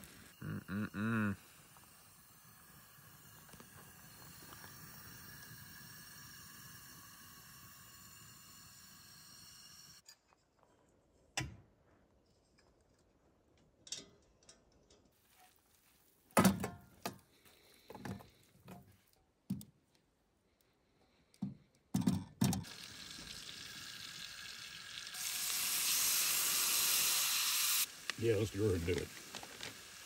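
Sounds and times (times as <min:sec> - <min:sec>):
garlic and butter sizzling in pan: 0:22.6 - 0:30.0.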